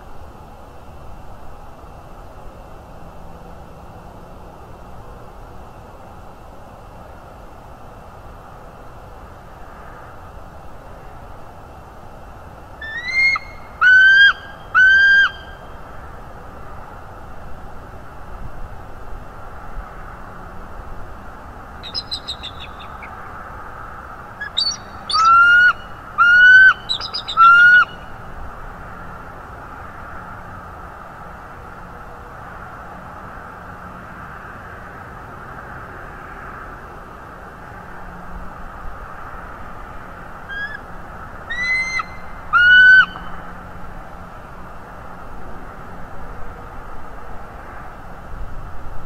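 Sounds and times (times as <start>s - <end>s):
eagle chirping: 12.8s - 15.6s, 21.8s - 23.2s, 24.4s - 28.0s, 40.5s - 40.8s, 41.5s - 43.3s
eagle whistled calls: 12.8s - 15.6s, 21.8s - 23.1s, 24.4s - 28.1s, 40.5s - 40.8s, 41.5s - 43.3s.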